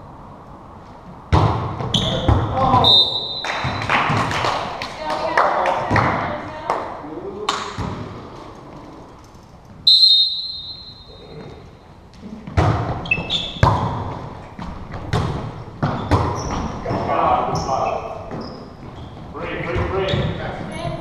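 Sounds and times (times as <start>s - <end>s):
volleyball slaps and thuds: 1.3s - 2.8s, 3.5s - 4.4s, 7.5s - 8.2s, 12.4s - 16.7s
referee's whistle: 2.8s - 3.9s, 9.8s - 11.2s.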